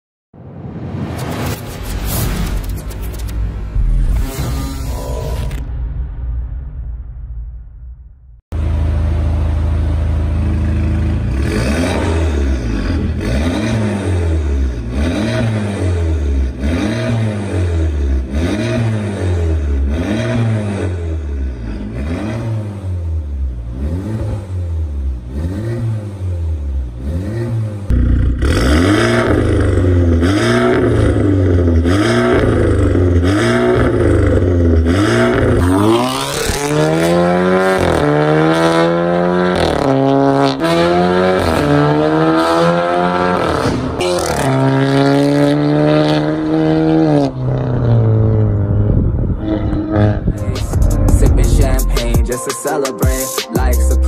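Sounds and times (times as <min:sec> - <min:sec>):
car exhaust revving: 0:07.6 - 0:52.2
car accelerating away: 0:08.6 - 0:50.4.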